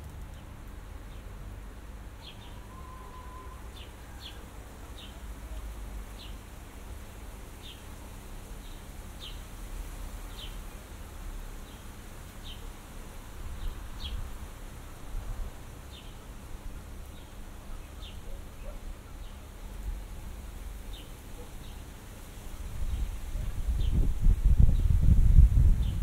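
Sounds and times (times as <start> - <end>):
low wind rumble: 22.4 - 26.0.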